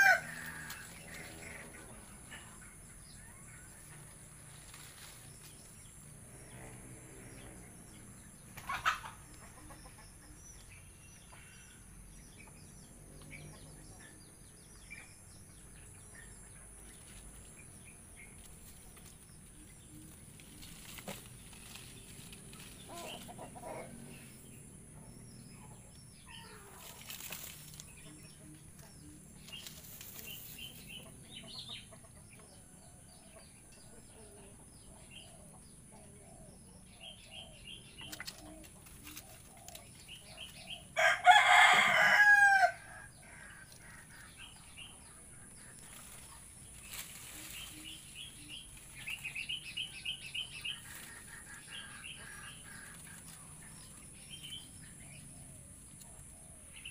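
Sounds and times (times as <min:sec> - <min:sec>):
rooster crowing: 0:00.0 - 0:00.9, 0:41.0 - 0:43.0
small birds chirping: 0:00.0 - 0:56.9.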